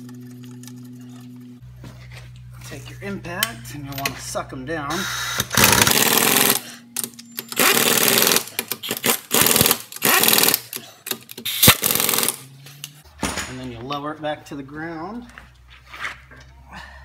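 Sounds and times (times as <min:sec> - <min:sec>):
impact wrench hammering: 0:05.4 - 0:12.4.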